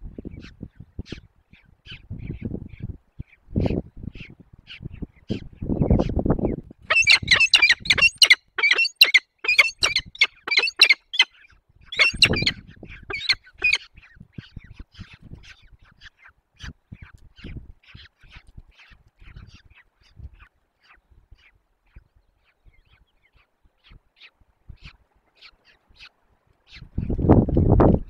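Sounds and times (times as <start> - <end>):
falcons giving harsh calls: 6.9 - 11.3, 12.0 - 13.8.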